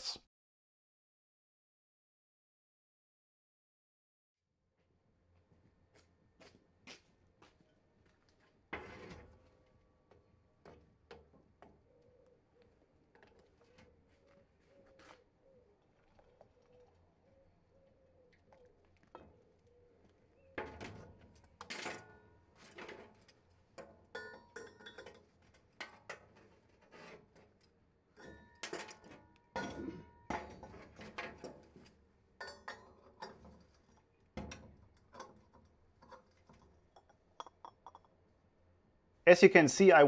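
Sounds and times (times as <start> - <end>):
metallic clinks and knocks: 20.6 - 26.2, 28.2 - 38.2.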